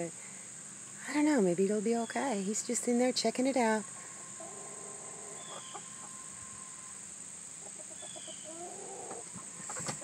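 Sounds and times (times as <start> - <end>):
chickens clucking: 3.6 - 10.0.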